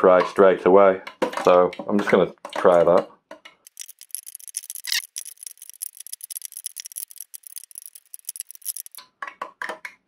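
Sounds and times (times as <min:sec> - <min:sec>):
hot oil crackling and sizzling: 0:03.7 - 0:09.0.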